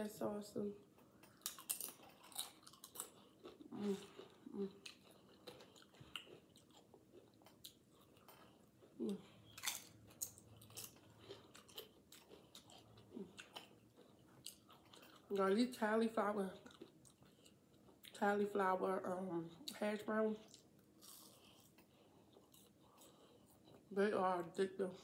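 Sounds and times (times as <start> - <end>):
wet chewing: 0.9 - 15.5, 16.6 - 18.2, 20.4 - 23.9
chips crunching: 1.2 - 8.6, 9.5 - 13.8.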